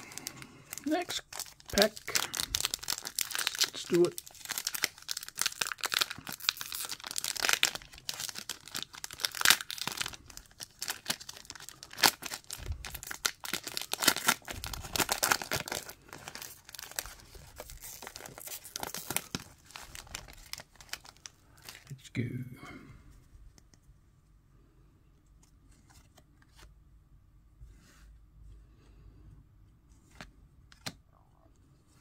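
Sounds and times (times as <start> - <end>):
foil wrapper crinkling: 0.0 - 21.9.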